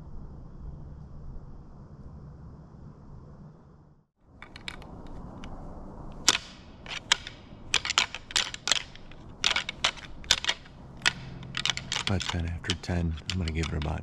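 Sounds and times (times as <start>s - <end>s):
antlers clacking together: 4.4s - 5.2s, 6.2s - 14.0s.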